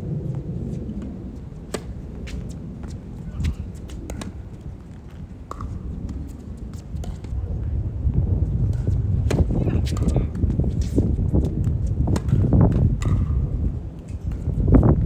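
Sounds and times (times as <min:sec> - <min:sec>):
low rumble: 0:00.0 - 0:15.0
tennis ball hits and bounces: 0:05.5 - 0:05.8, 0:08.7 - 0:10.5, 0:12.0 - 0:13.4.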